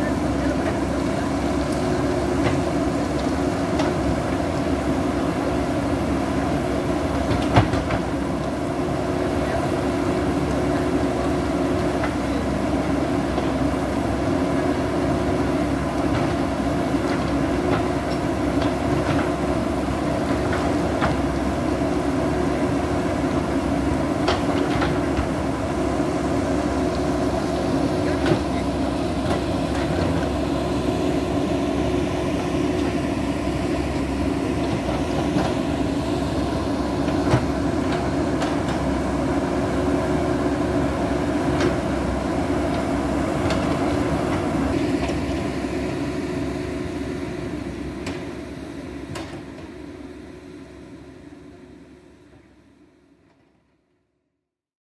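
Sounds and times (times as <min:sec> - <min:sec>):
diesel engine running under load: 0:00.0 - 0:53.3.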